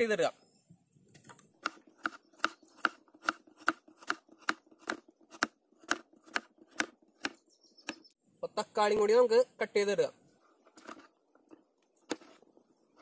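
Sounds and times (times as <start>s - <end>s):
knife chopping on cutting board: 1.6s - 8.0s.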